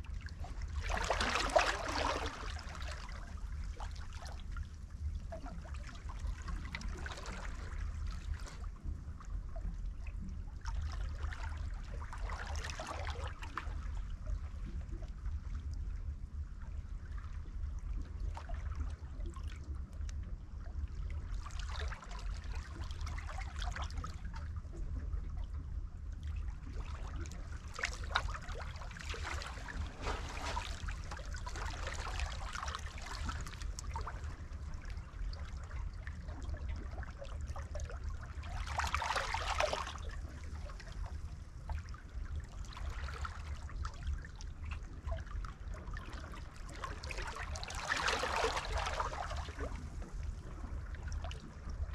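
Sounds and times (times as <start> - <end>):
water splashing around hands: 29.1 - 32.5.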